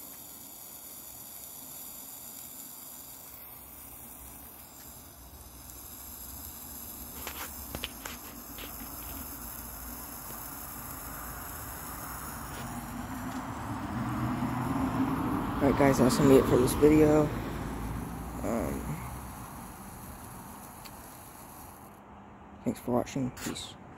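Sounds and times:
sparkler hissing: 0.0 - 22.0
sharp clicks: 18.0 - 22.0.

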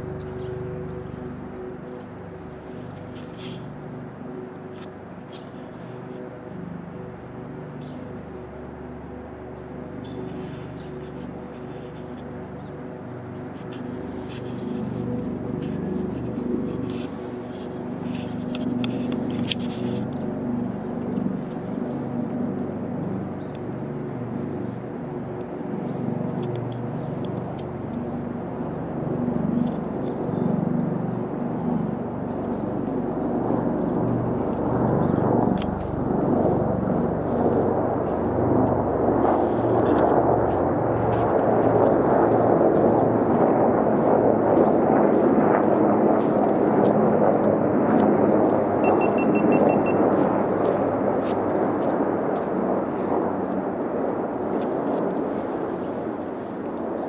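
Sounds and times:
low engine hum: 0.0 - 55.8.

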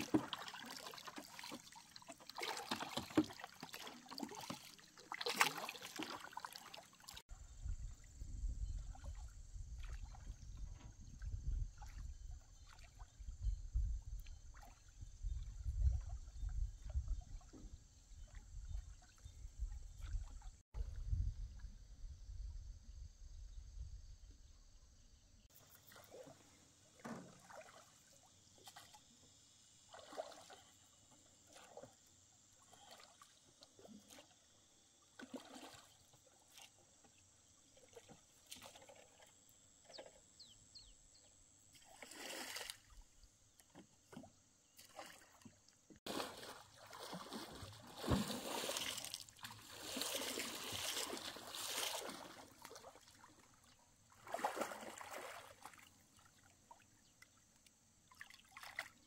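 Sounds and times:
water splashing and trickling: 0.0 - 21.8, 25.4 - 40.6, 41.7 - 59.0.

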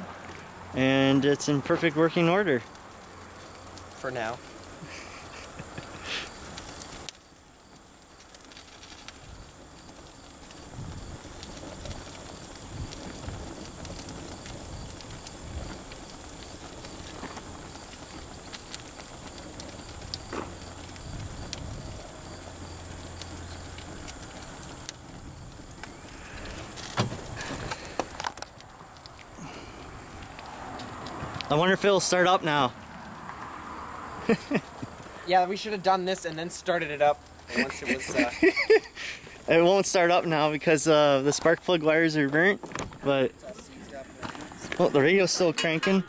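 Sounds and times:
flames hissing and crackling: 0.0 - 46.0.

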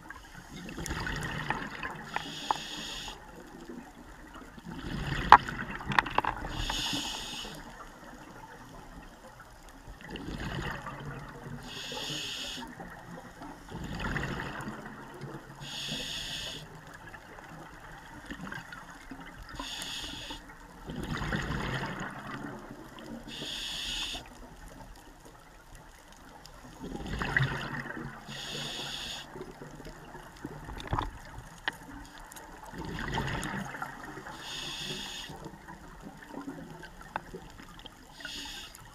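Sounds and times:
exhaled bubbles rushing: 0.6 - 2.1, 4.6 - 6.6, 10.0 - 11.6, 13.7 - 15.2, 20.9 - 23.0, 26.8 - 28.3, 32.6 - 34.3
regulator hissing inhale: 2.1 - 3.2, 6.5 - 7.7, 11.6 - 12.7, 15.6 - 16.7, 19.6 - 20.4, 23.3 - 24.3, 28.3 - 29.4, 34.4 - 35.4, 38.2 - 38.8.

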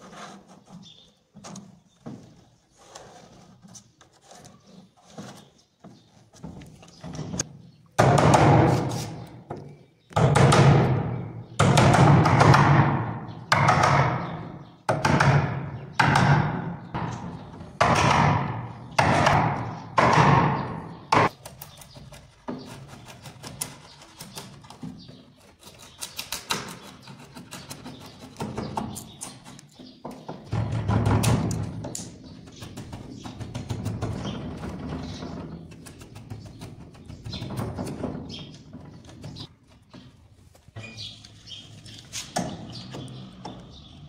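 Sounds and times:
hammer striking chisel into wood: 10.2 - 21.4.

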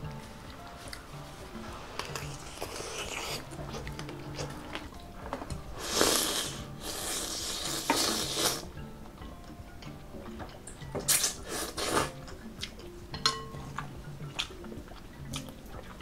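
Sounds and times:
soft chewing and mouth sounds: 0.0 - 16.0
person slurping noodles: 5.8 - 8.7, 11.1 - 12.2.

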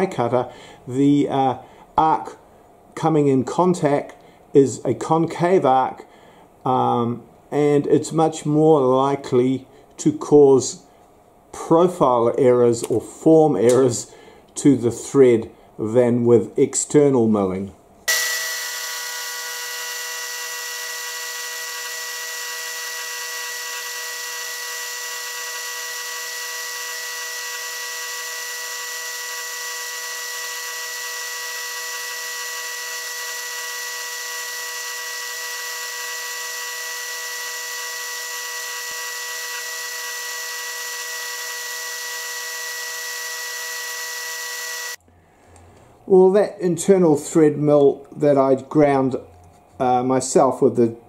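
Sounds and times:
milling machine spindle whine: 18.1 - 45.0.

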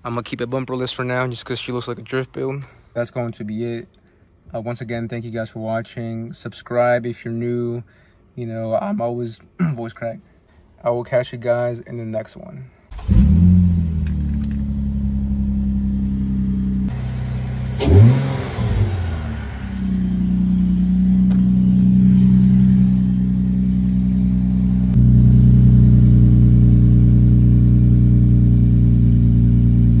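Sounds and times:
engine rev: 12.9 - 30.0
car engine idling: 13.0 - 30.0.

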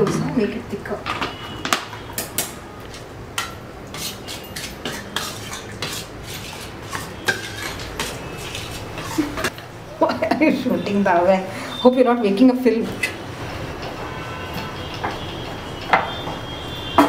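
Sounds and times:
metal pots and utensils clinking: 1.0 - 9.6.

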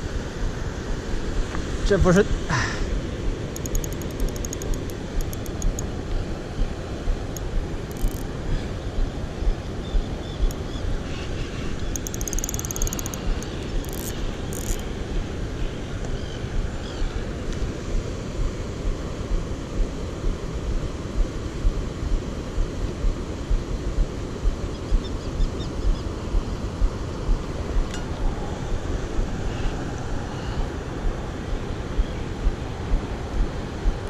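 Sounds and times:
faint rapid ticking: 3.6 - 5.9, 7.3 - 8.2, 11.8 - 14.8.

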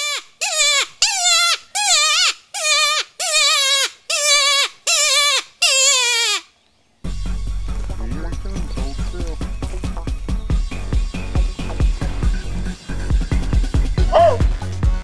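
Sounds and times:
predator call wailing cries: 14.1 - 14.5.

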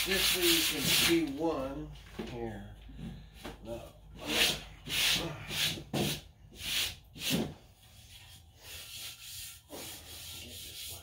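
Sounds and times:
hand sanding metal: 0.0 - 1.4, 4.2 - 11.0.

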